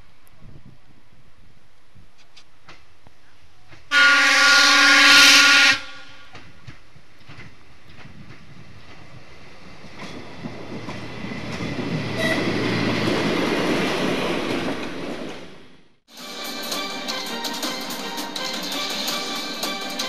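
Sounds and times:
diesel railcar passing: 0.0 - 20.0
train wheels clattering over rail joints: 6.3 - 9.2, 9.8 - 15.5
music: 16.1 - 20.0.

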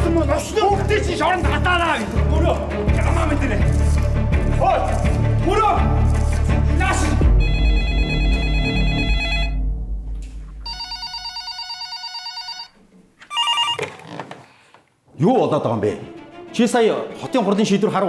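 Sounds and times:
desk telephones ringing: 7.4 - 9.5, 10.7 - 14.1.

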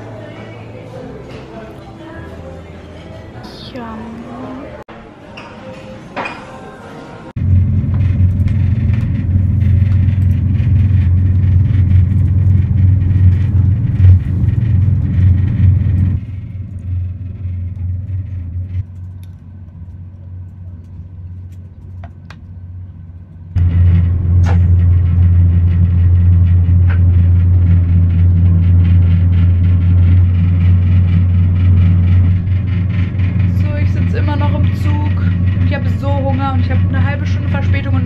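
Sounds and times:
train rumble inside carriage: 7.4 - 20.7, 23.4 - 38.0.

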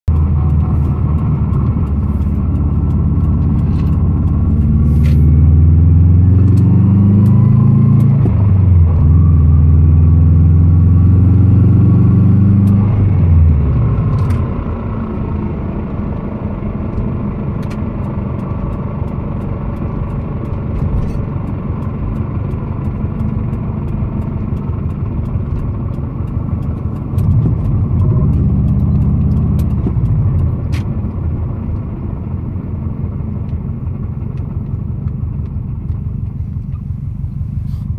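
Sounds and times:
car engine accelerating: 0.0 - 37.9
car deceleration noise: 0.1 - 37.9.

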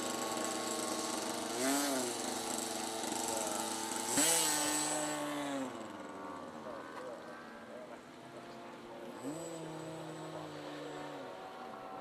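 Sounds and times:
model airplane engine running: 0.0 - 12.0.

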